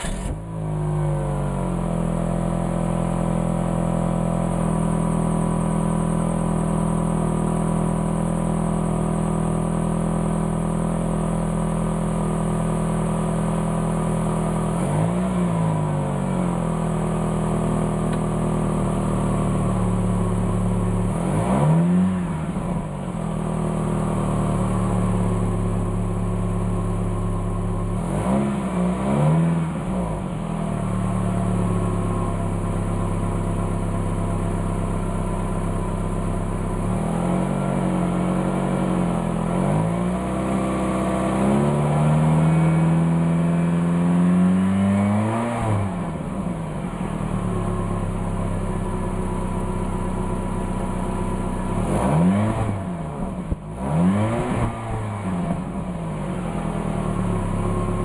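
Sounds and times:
car engine idling: 0.0 - 14.8, 15.5 - 21.3, 22.0 - 28.2, 29.6 - 44.2, 45.8 - 53.9, 54.7 - 58.0
engine revving: 21.0 - 22.7, 27.9 - 30.2, 36.8 - 46.5, 51.6 - 58.0.

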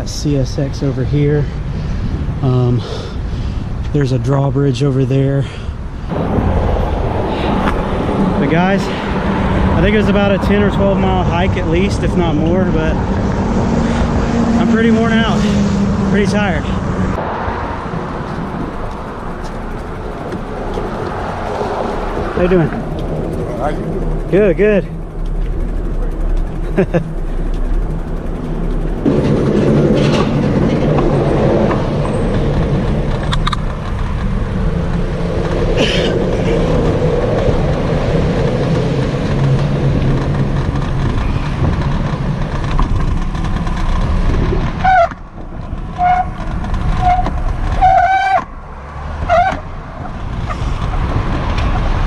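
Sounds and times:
road traffic droning on bridge: 0.0 - 52.0
wind on microphone: 28.1 - 48.0.

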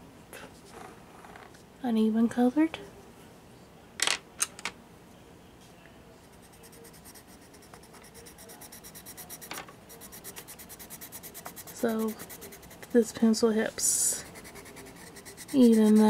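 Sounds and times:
pencil scratching on paper: 6.3 - 13.1, 14.2 - 16.0.

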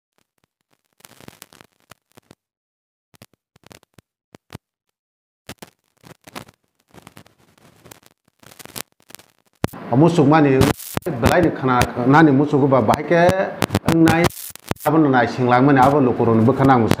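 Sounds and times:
microphone clicks and crackles: 0.2 - 2.5, 3.2 - 4.7, 5.5 - 9.9, 10.5 - 12.1, 12.8 - 15.0, 16.6 - 17.0.

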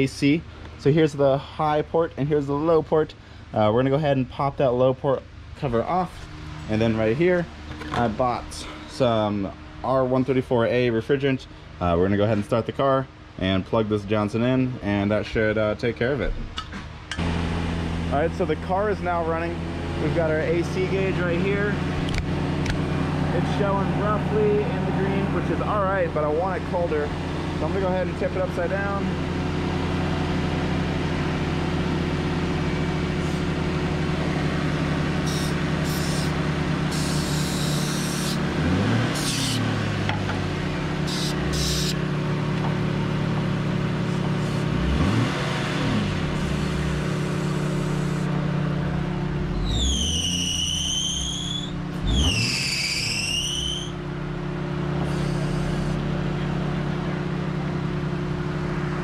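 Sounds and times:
car engine idling: 17.1 - 52.4, 53.2 - 59.0
short high squeals: 35.2 - 38.4, 39.1 - 39.7, 41.0 - 42.0, 49.6 - 54.0, 55.0 - 56.0.

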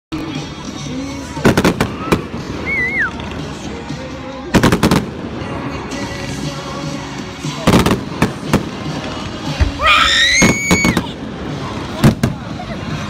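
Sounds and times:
fireworks bursting: 1.3 - 3.5, 4.5 - 6.2, 7.5 - 12.9.

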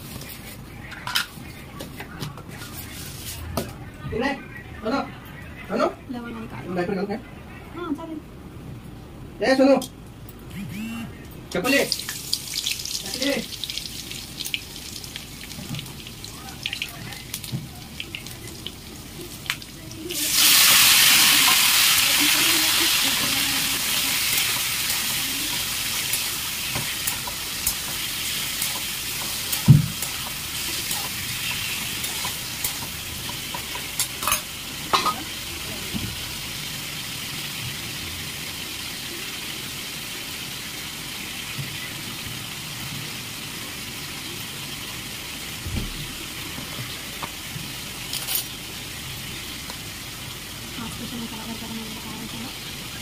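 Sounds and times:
food sizzling in hot oil: 11.6 - 53.0.

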